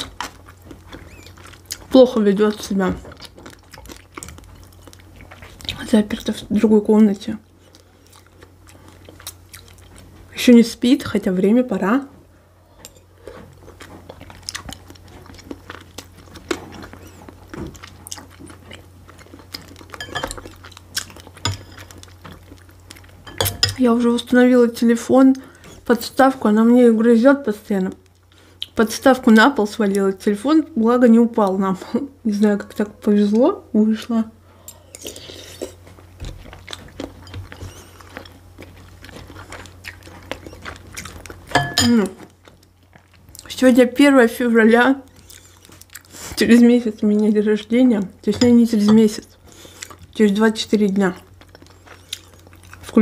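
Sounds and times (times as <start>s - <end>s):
person chewing: 0.0s - 5.8s, 7.5s - 10.3s, 12.8s - 23.9s, 34.6s - 43.5s, 45.0s - 46.5s, 48.0s - 50.5s, 51.2s - 53.0s.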